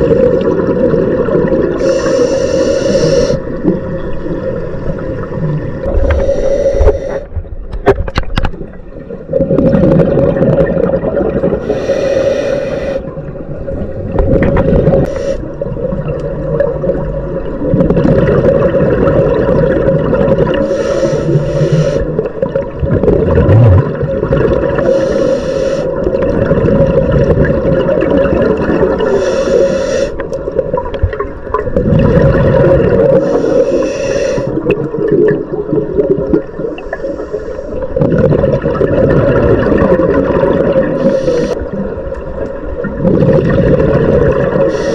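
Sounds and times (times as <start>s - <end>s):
bubbles hissing and gurgling: 0.0s - 7.5s, 8.9s - 44.9s
diver regulator breathing: 1.8s - 3.5s, 5.8s - 7.4s, 11.6s - 13.1s, 15.0s - 15.5s, 20.6s - 22.2s, 24.8s - 26.0s, 29.0s - 30.3s, 33.1s - 34.6s, 36.7s - 38.0s, 40.8s - 41.7s, 44.6s - 44.9s.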